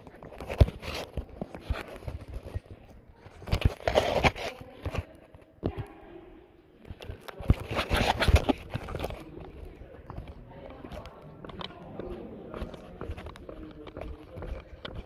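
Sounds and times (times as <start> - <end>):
indistinct voices: 0.0 - 15.0
footsteps on gritty pavement: 7.8 - 15.0.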